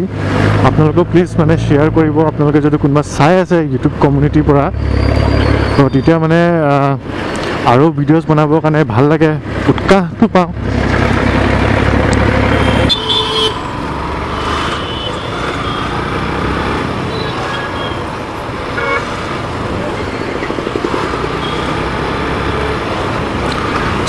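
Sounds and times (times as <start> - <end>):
road noise: 0.0 - 24.0
motorcycle engine: 10.6 - 24.0.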